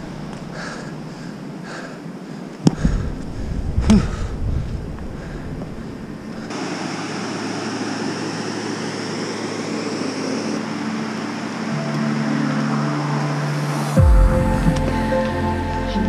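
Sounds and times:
steady rushing noise: 0.0 - 16.0
soft music with held notes: 10.2 - 16.0.

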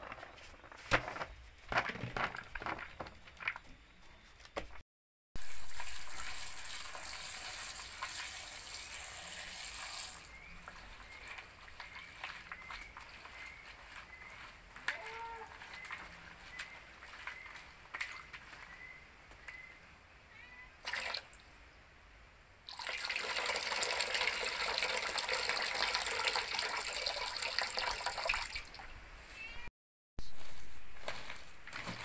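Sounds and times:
hands working food in plastic bowl: 0.0 - 3.7, 10.3 - 18.8
water rushing from tap into bowl: 5.4 - 10.3, 22.7 - 28.6.

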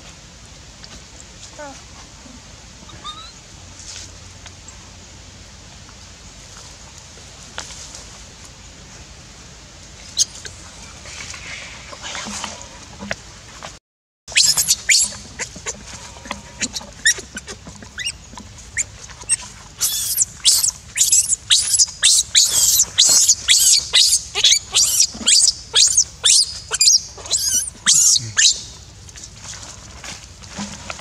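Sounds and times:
baby monkey screaming: 2.9 - 3.4, 14.3 - 15.7, 18.8 - 28.8.

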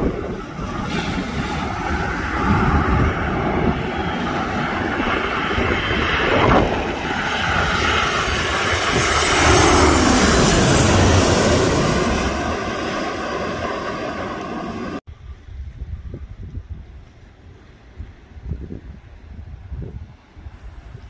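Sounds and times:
high engine whine: 0.0 - 15.1
airliner engines rushing: 0.0 - 15.4.

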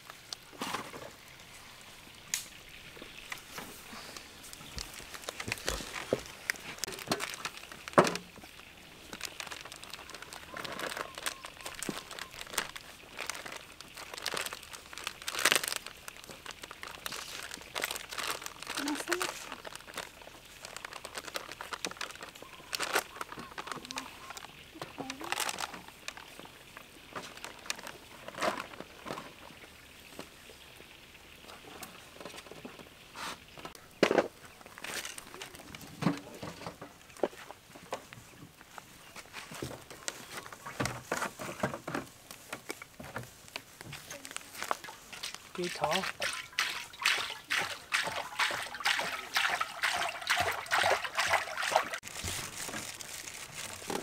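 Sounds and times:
oil pouring and gurgling: 0.0 - 23.7, 44.6 - 54.0
hands patting and rustling in bowls: 2.9 - 29.5, 33.6 - 54.0.

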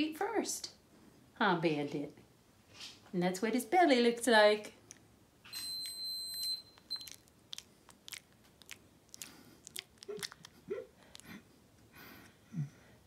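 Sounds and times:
puppy mouth-smacking clicks: 6.4 - 11.3.

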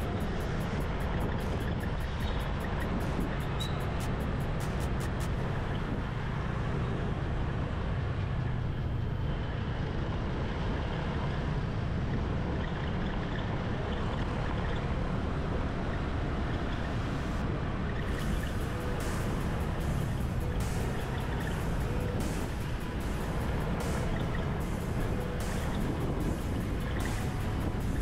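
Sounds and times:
faint rhythmic high ticks: 0.0 - 5.9
wind and road noise: 0.0 - 28.0.

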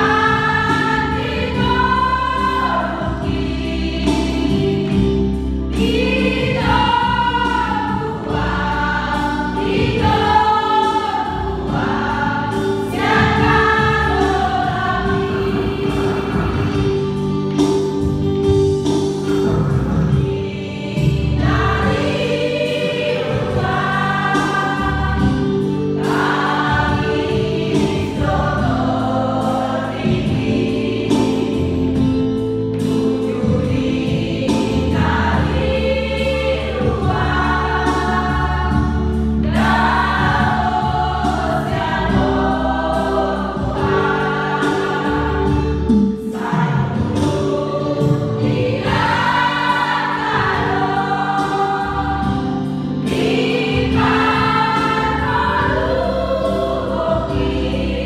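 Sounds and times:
women's choir singing a hymn: 0.0 - 58.0
held low instrumental notes: 13.1 - 22.4.

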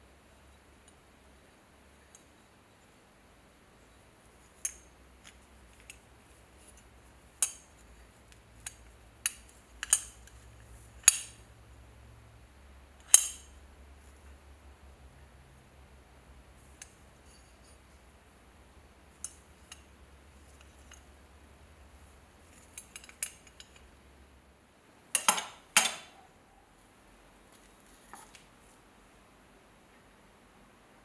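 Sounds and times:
metal belt buckle clicks: 8.6 - 10.4, 11.0 - 11.4.

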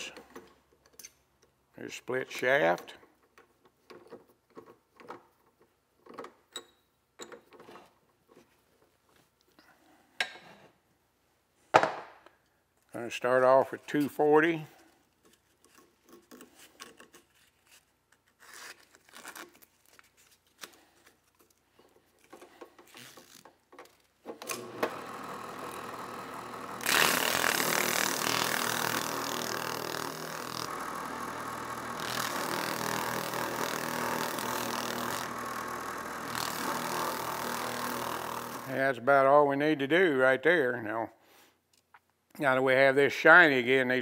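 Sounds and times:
drill press motor humming: 24.4 - 38.7.

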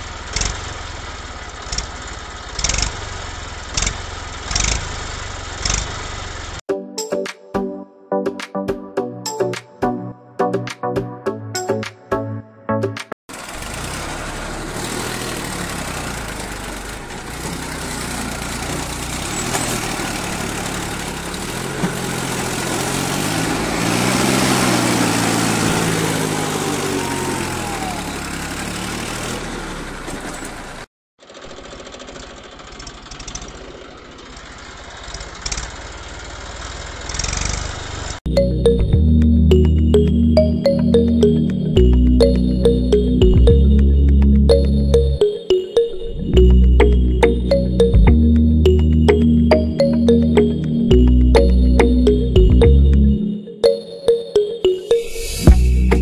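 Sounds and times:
tractor engine running: 13.3 - 45.3, 46.3 - 53.2, 55.5 - 56.0.

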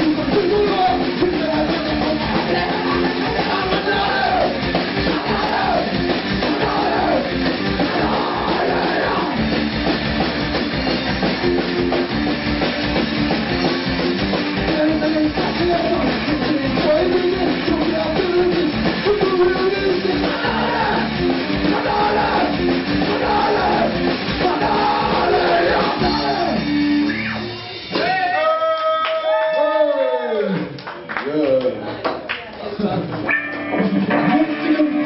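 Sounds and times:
man singing into a microphone: 0.0 - 4.5, 14.6 - 21.1, 21.7 - 26.6
electric guitar: 0.0 - 28.2, 33.2 - 35.0
rock band playing live: 0.0 - 28.6, 33.1 - 35.0
drum kit: 0.0 - 28.8, 33.1 - 35.0.

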